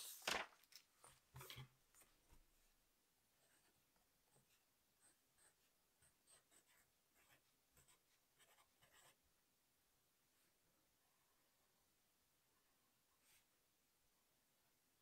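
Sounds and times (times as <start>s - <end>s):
pencil scratching on paper: 3.4s - 9.2s.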